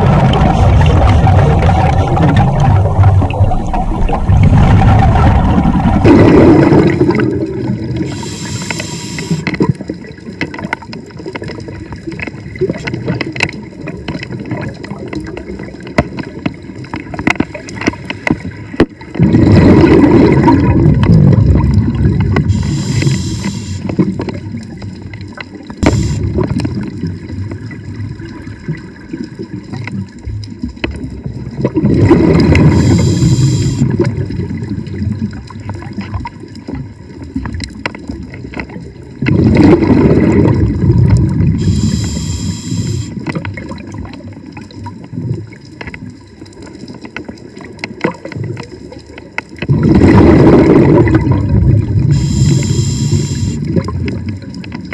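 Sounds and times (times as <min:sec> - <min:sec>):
regulator bubbles rushing: 0:00.0 - 0:17.7, 0:19.0 - 0:45.6, 0:49.6 - 0:54.9
underwater water noise: 0:00.0 - 0:54.9
regulator hiss: 0:08.0 - 0:09.5, 0:22.5 - 0:23.9, 0:25.8 - 0:26.3, 0:32.7 - 0:33.8, 0:41.6 - 0:43.2, 0:52.1 - 0:53.7.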